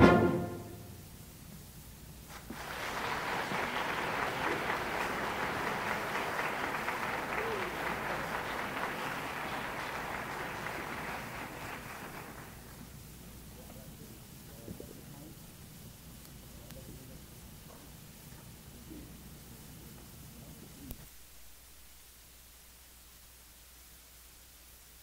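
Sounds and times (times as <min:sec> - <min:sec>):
audience applauding: 0:02.3 - 0:12.9.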